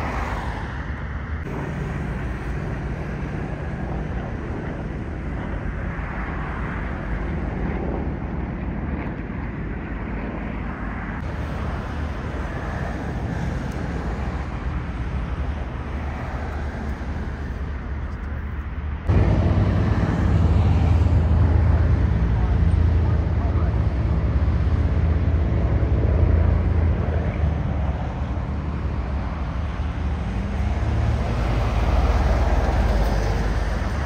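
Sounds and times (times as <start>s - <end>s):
propeller aircraft droning overhead: 0.0s - 34.0s
deep rumble: 16.9s - 29.4s.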